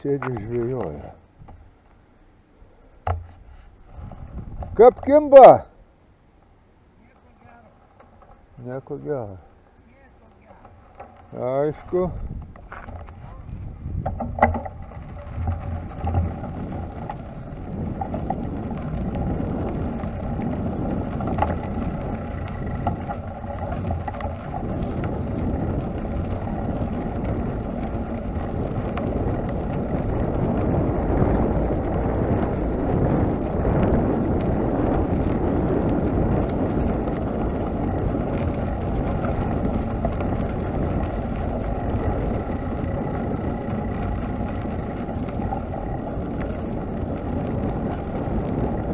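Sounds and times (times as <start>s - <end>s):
wind buffeting microphone: 3.8s - 5.6s, 11.3s - 48.9s.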